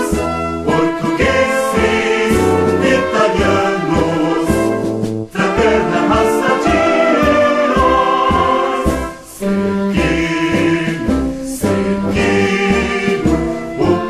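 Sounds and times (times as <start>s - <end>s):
choir singing: 0.0s - 14.0s
instrumental ensemble playing: 0.0s - 14.0s.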